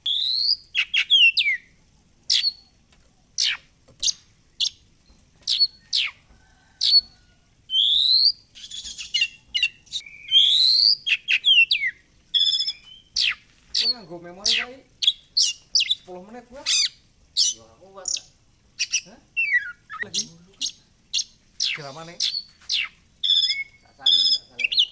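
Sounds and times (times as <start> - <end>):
bird singing whistles: 0.0 - 1.7, 2.3 - 2.7, 5.5 - 6.2, 6.8 - 16.1, 16.7 - 24.9
fast bird trill: 0.0 - 2.8, 3.4 - 24.9
scratchy buzzy bird phrase: 13.2 - 20.9, 21.6 - 24.9.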